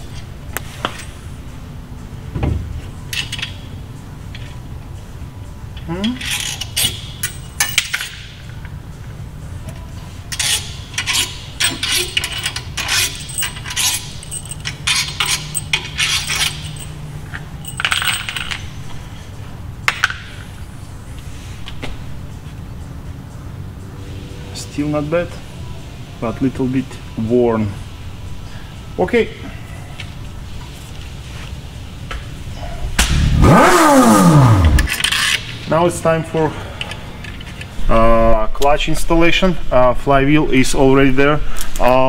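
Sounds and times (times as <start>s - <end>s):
small metal parts clinking: 5.8s - 8.3s, 10.3s - 19.0s.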